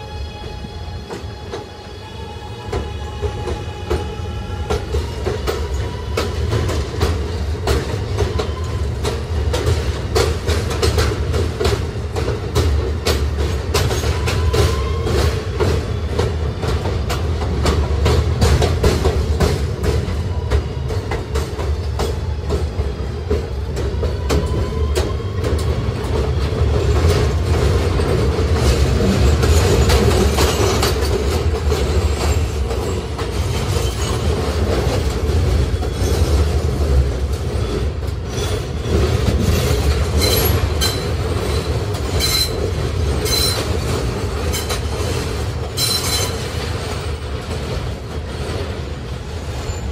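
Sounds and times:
rail joint clicks: 0.0 - 49.9
wheels rumbling on rail: 0.0 - 49.9
wheel squeal: 40.2 - 42.6, 43.2 - 43.7, 45.8 - 46.4.

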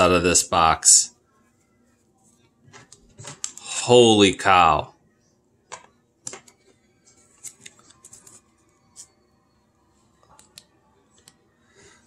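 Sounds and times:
card and plastic clicks and scrapes: 5.7 - 9.1.

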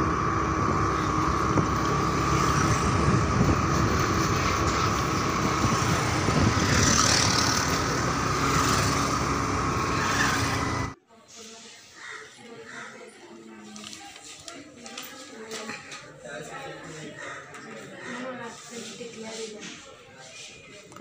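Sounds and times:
motorbike engine running: 0.0 - 11.0
wind on microphone: 2.7 - 7.7.

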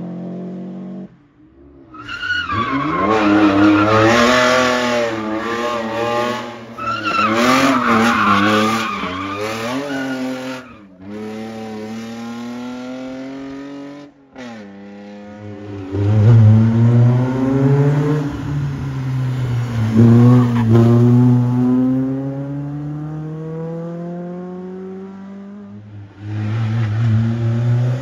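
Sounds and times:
rally car engine revving: 2.5 - 28.0
tyre squeal: 6.8 - 10.9.

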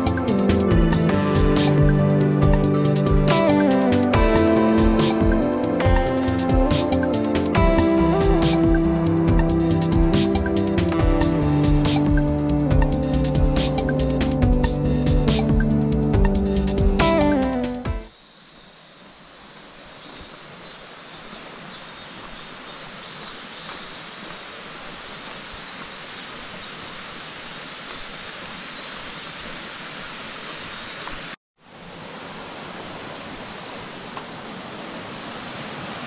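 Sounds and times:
waterfall rushing: 0.0 - 13.4.

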